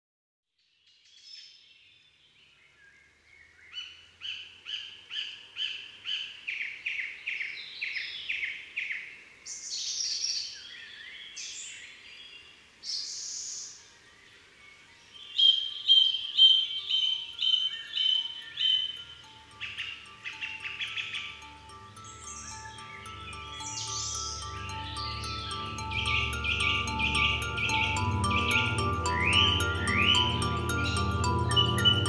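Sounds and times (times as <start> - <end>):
birds chirping: 9.8 - 32.0.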